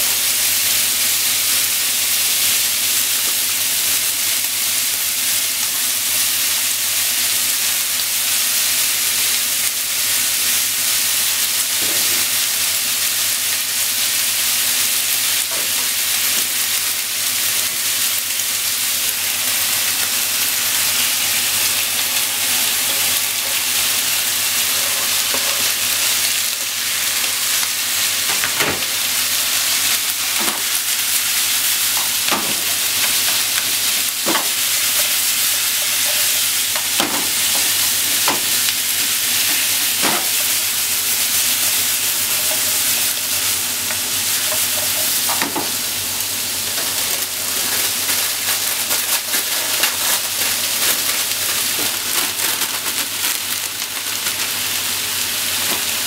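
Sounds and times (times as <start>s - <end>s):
meat sizzling in a frying pan: 0.0s - 56.0s.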